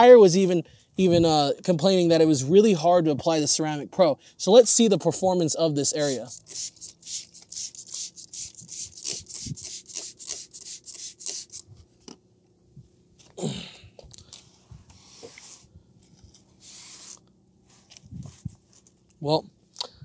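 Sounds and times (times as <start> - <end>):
towel wiping vinyl wrap: 16.6 - 18.8.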